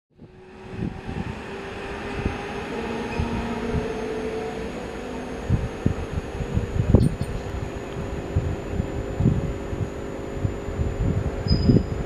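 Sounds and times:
diesel locomotive engine humming: 0.1 - 12.0
irregular low thumps: 5.8 - 11.4.

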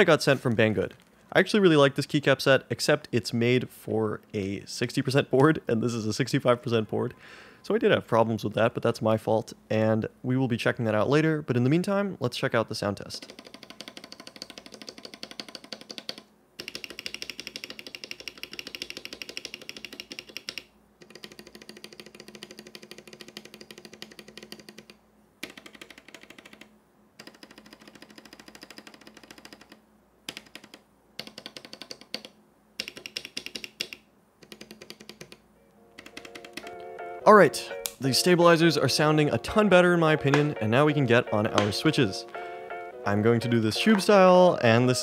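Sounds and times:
keyboard keys clacking: 34.5 - 45.0.

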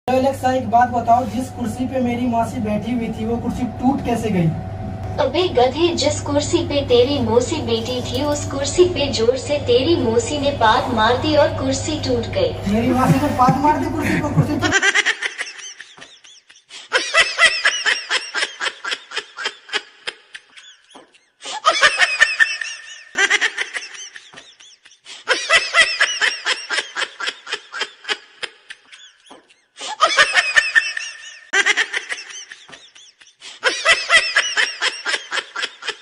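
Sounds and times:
group of people laughing: 12.8 - 36.0.

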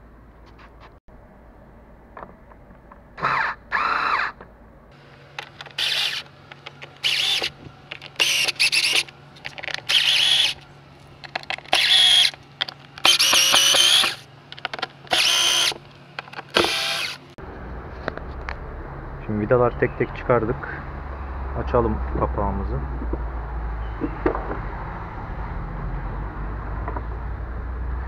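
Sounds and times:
electric screwdriver whining: 5.4 - 9.1, 9.7 - 10.6, 11.6 - 12.4, 13.0 - 14.2, 15.1 - 15.8, 16.5 - 17.2.

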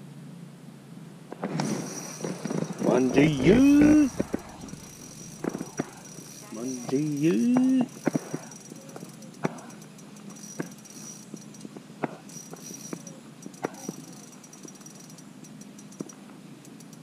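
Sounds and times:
handling noise: 1.5 - 7.0
fishing reel ticking: 1.7 - 11.7, 12.3 - 17.0.

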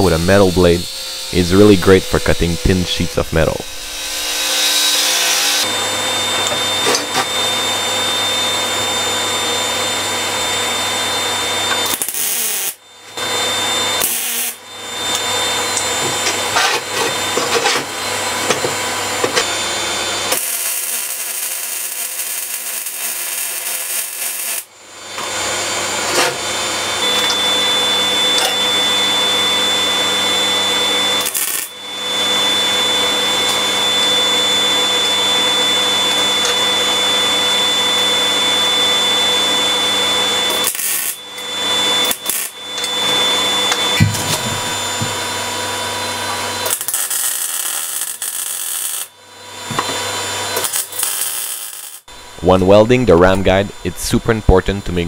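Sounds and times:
jigsaw cutting sheet metal: 0.0 - 7.4, 11.7 - 12.8, 13.5 - 25.4, 26.0 - 52.1
welding hissing crackle: 11.8 - 12.8, 14.0 - 14.6, 20.3 - 24.7, 31.2 - 31.7, 40.5 - 41.2, 42.0 - 42.6, 46.6 - 49.1, 50.6 - 52.0.

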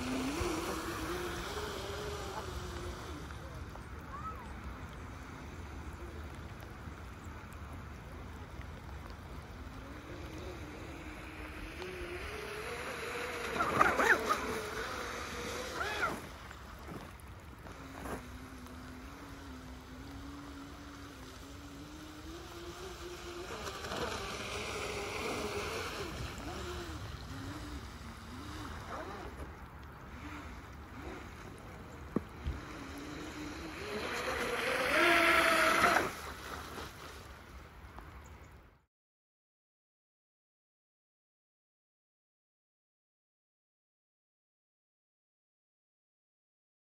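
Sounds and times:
boat motor whine: 0.0 - 7.1, 7.8 - 36.9.

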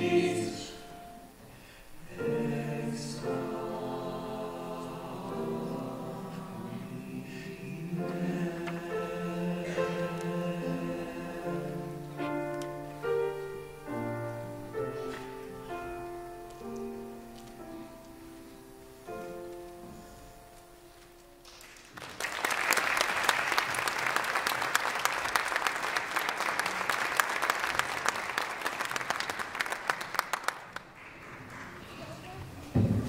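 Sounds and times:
sustained piano chords: 2.0 - 21.2
audience applause: 21.5 - 32.4.

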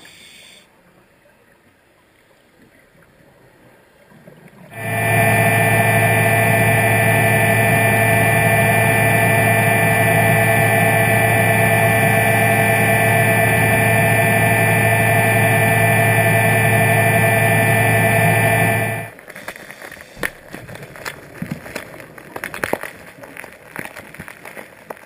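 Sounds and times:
underwater scooter motor whine: 4.7 - 19.2.

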